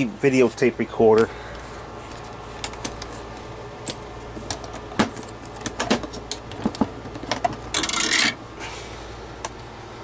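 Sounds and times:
steady low hum: 0:00.0 - 0:10.0
metal catches clicking and knocking: 0:03.8 - 0:08.4.

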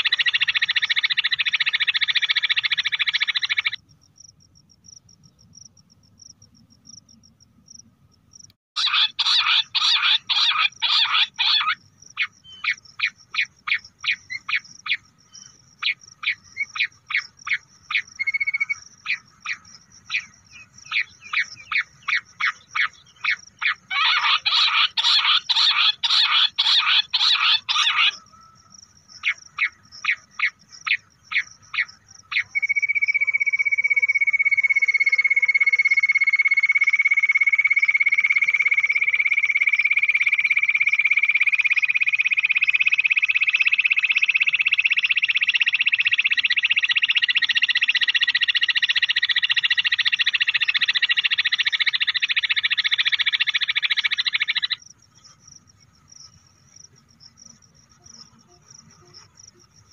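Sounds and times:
quail call: 0:08.8 - 0:15.0, 0:20.9 - 0:28.6.

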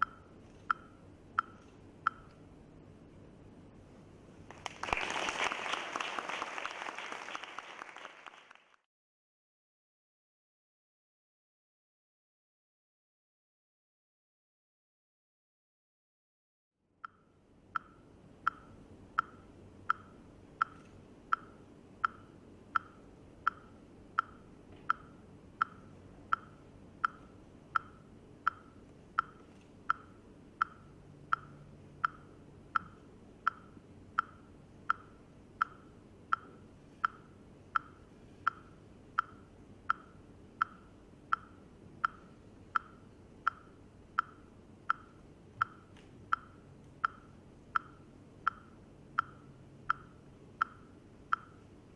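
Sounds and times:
pitched ticking clicks: 0:00.0 - 0:02.5, 0:17.0 - 0:51.9
low steady hum: 0:00.0 - 0:05.7, 0:16.9 - 0:51.9.

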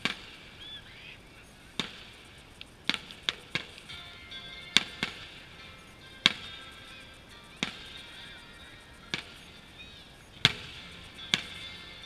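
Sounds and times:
firework bangs: 0:00.0 - 0:00.9, 0:01.5 - 0:12.0
background music: 0:03.4 - 0:12.0.

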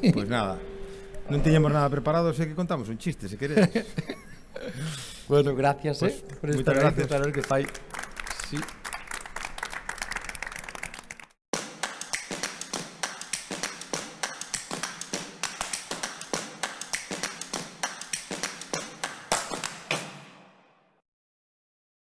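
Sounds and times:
audience applause: 0:06.3 - 0:19.9
sharp taps: 0:11.6 - 0:20.2.

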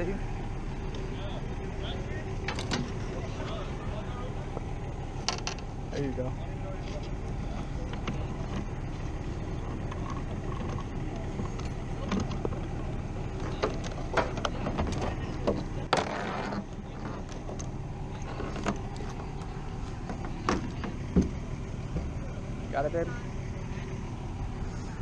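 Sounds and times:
low vehicle hum: 0:00.0 - 0:25.0
scraping rustle: 0:13.3 - 0:21.2.

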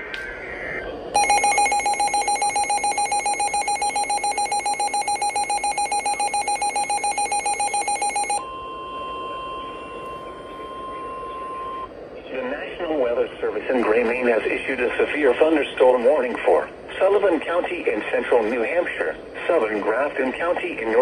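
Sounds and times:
rapid electronic beeping: 0:01.2 - 0:08.4
steady single-pitched alarm tone: 0:01.2 - 0:11.9.

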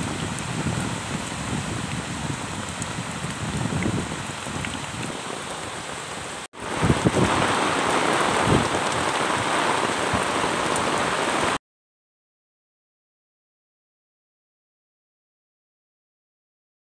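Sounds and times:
rain pattering on wet ground: 0:00.0 - 0:11.6.

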